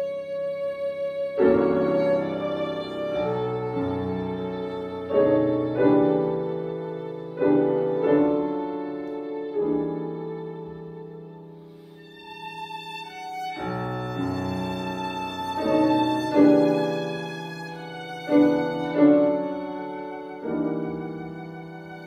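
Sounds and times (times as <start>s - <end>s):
violin note with vibrato: 0.0s - 10.8s
piano chords: 0.0s - 22.0s.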